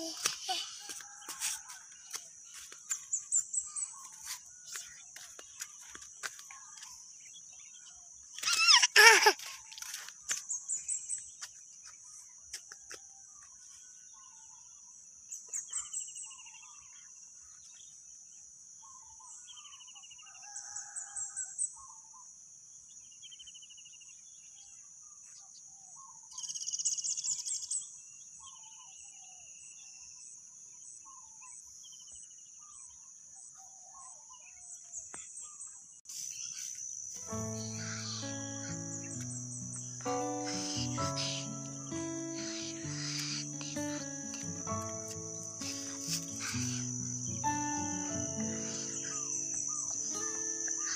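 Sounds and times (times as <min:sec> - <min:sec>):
birds chirping and calling: 0:35.4 - 0:50.9
high insect drone: 0:36.1 - 0:50.9.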